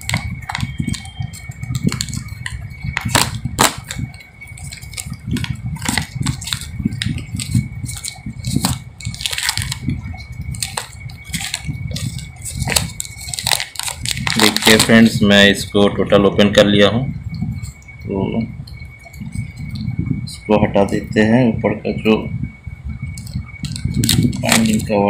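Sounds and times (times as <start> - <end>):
plastic wrap crinkling and tearing: 0.0 - 15.1, 23.2 - 24.9.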